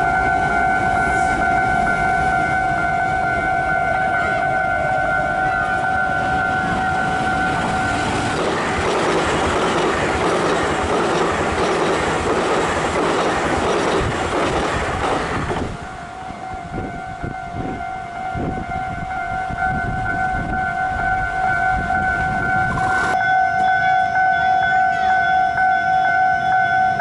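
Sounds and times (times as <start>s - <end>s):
level crossing alarm tone: 0.0s - 8.4s, 15.6s - 27.0s
train passing at speed: 0.0s - 27.0s.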